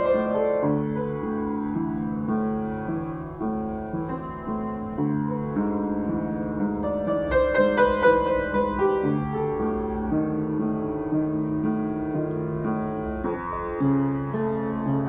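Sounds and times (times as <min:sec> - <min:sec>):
upright piano playing: 0:00.0 - 0:15.0.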